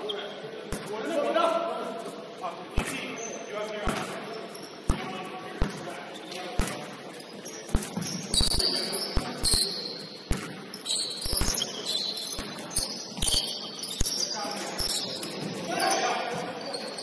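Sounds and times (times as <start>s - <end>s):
sneaker squeaks: 0.0s - 0.9s, 1.9s - 17.0s
basketball bouncing on court: 3.8s - 4.2s, 4.9s - 6.9s, 7.7s - 14.2s.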